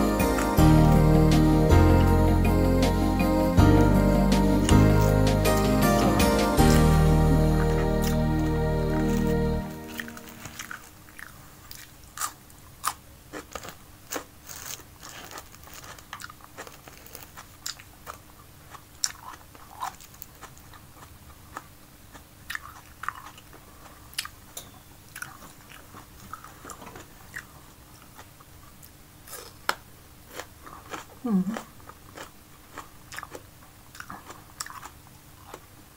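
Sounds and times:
chewing crisp pepper: 0:06.6 - 0:24.5, 0:25.1 - 0:35.8.

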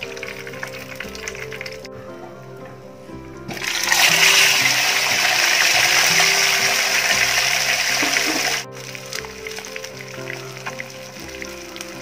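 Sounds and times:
soft background music: 0:00.0 - 0:12.0
fish sizzling in hot oil: 0:03.6 - 0:12.0.

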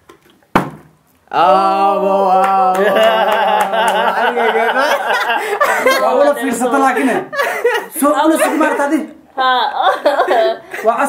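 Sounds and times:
sharp knock: 0:00.5 - 0:00.9.

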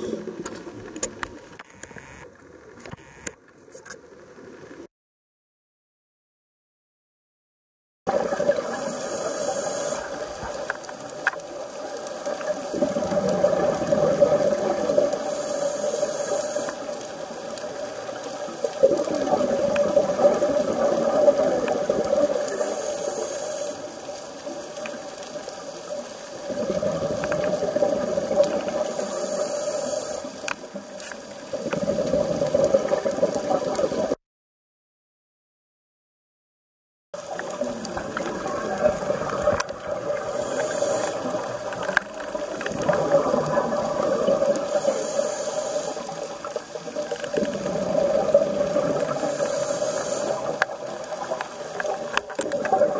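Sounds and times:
bubbling exhale underwater: 0:08.1 - 0:10.6, 0:12.4 - 0:15.5, 0:18.6 - 0:22.7, 0:26.4 - 0:29.4, 0:31.5 - 0:34.2, 0:37.2 - 0:45.3, 0:45.9 - 0:52.9
hissing regulator inhale: 0:08.7 - 0:10.5, 0:15.2 - 0:17.0, 0:22.4 - 0:24.0, 0:28.8 - 0:30.6, 0:40.2 - 0:41.7, 0:43.6 - 0:46.4, 0:49.0 - 0:50.6.

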